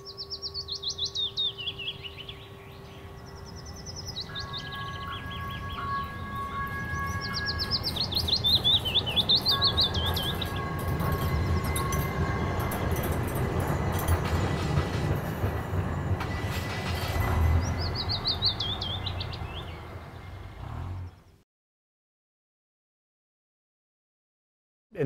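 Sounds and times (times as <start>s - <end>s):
birds chirping: 0.0s - 21.4s
streetcar rumbling on rails: 0.0s - 21.4s.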